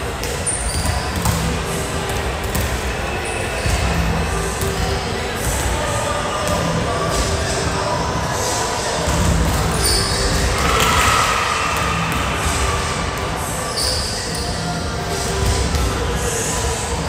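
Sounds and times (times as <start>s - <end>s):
volleyballs hit and bouncing: 0.0s - 5.8s, 9.0s - 16.2s
voices in gym: 0.0s - 17.0s.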